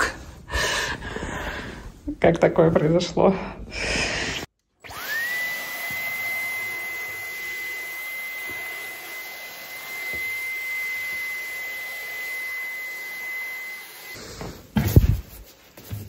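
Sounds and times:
cordless vacuum whining: 4.4 - 14.7.

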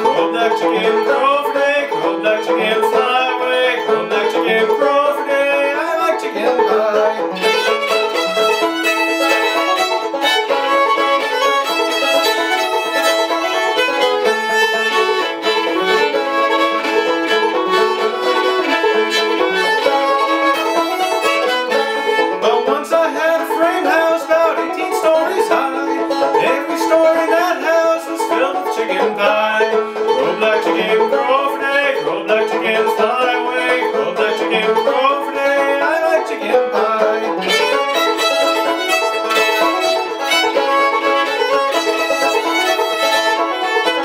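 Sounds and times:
man singing: 0.0 - 8.2, 22.3 - 38.0
banjo playing: 0.0 - 44.0
fiddle playing: 0.0 - 44.0.

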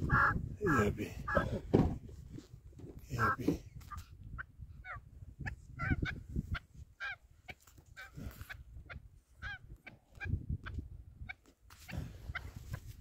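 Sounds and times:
partridge calling: 0.0 - 1.6, 3.2 - 12.9.

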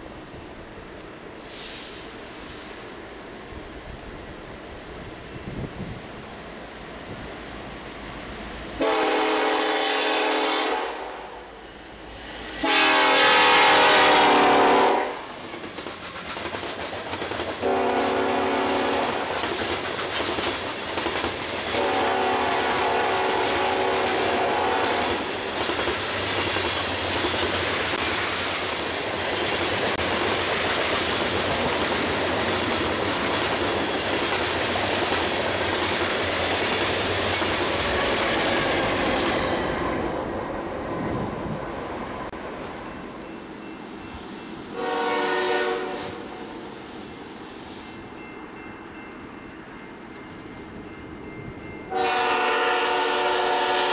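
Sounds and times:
locomotive air horn blasts: 8.8 - 11.5, 12.6 - 15.3, 17.6 - 19.2, 21.8 - 25.1, 44.7 - 46.5, 51.9 - 53.9
freight cars rumbling on rails: 11.9 - 44.2.

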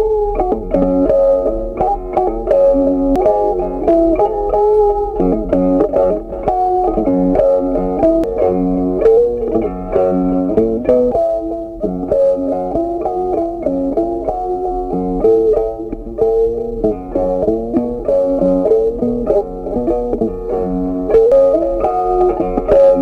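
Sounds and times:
plucked guitar melody: 0.0 - 23.0.

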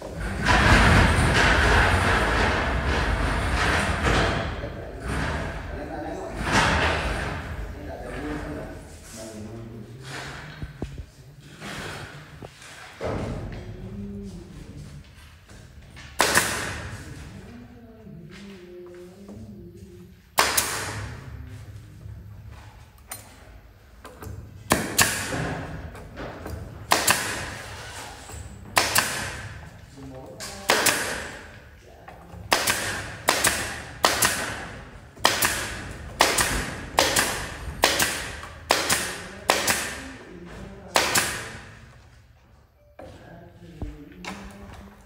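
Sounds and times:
nail gun firing into wood: 16.2 - 17.0, 20.4 - 21.2, 24.7 - 25.7, 26.8 - 27.7, 28.7 - 29.6, 30.6 - 31.5, 32.5 - 40.1, 40.9 - 41.8.

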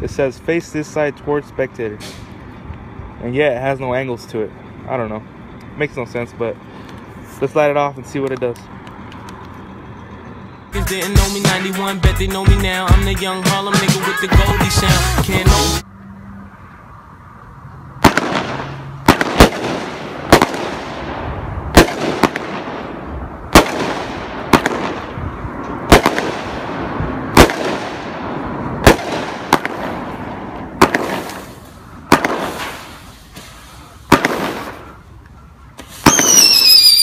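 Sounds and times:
firework bangs: 18.0 - 25.2, 25.8 - 34.9, 35.8 - 37.0
firework hiss: 30.8 - 34.9, 35.8 - 37.0.

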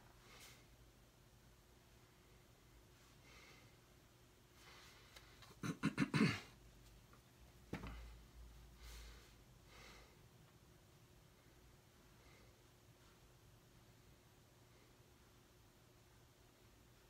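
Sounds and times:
person breathing softly: 0.1 - 0.9, 2.0 - 5.4, 7.8 - 10.4, 11.2 - 13.2.

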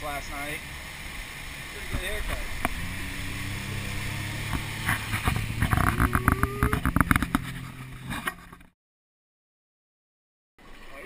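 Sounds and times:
boat motor running: 1.8 - 8.7.

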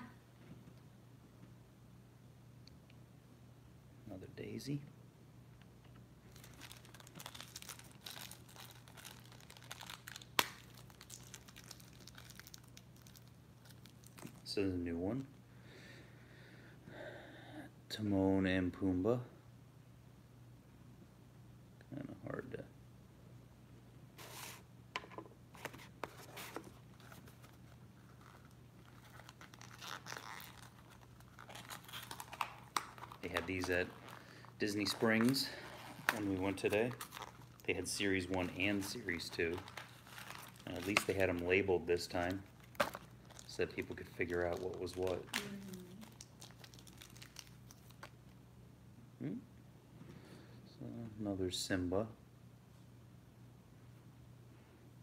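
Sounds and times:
packaging crinkling and tearing: 6.3 - 14.5, 25.6 - 48.4.

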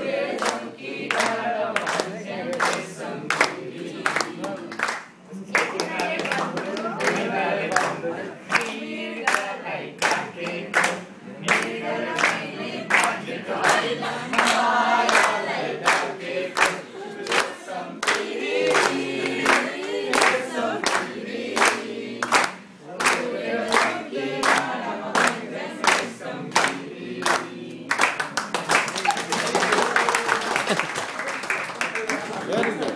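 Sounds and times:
group of people singing: 0.0 - 28.4
hand claps: 0.4 - 7.9, 8.5 - 32.9.

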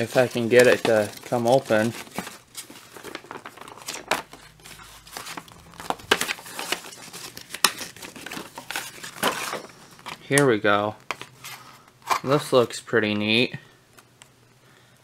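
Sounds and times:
packaging crinkling and tearing: 0.0 - 10.3.

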